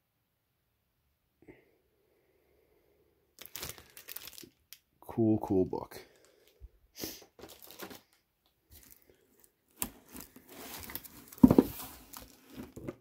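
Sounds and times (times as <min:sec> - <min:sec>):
plastic bags crinkling: 0:03.4 - 0:04.8, 0:07.4 - 0:12.9.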